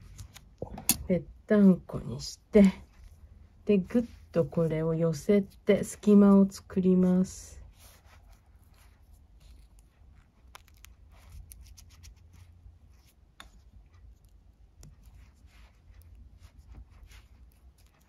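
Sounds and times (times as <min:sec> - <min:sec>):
low steady hum: 0:00.0 - 0:18.0
light clicks and scrapes of cord: 0:07.6 - 0:18.0.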